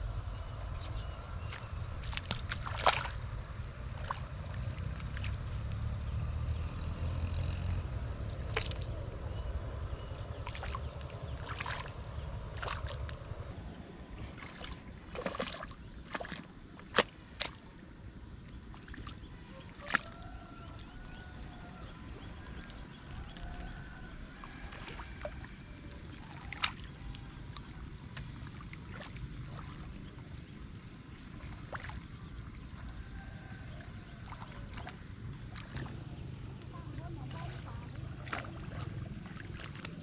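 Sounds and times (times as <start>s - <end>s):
muddy water sloshing: 0.0s - 5.8s, 8.2s - 13.5s, 14.2s - 40.0s
high-pitched whine: 0.0s - 15.0s.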